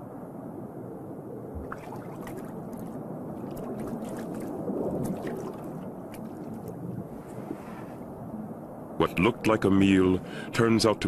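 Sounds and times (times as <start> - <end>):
underwater water rush: 1.5 - 8.4
bubbly crackles: 1.6 - 8.0.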